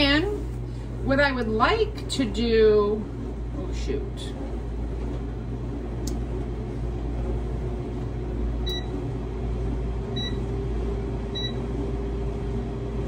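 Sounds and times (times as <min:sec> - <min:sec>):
air fryer fan hum: 0:00.0 - 0:13.0.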